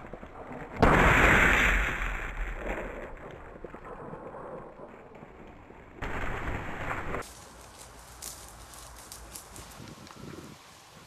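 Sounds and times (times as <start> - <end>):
shotgun shot: 0.8 - 4.4.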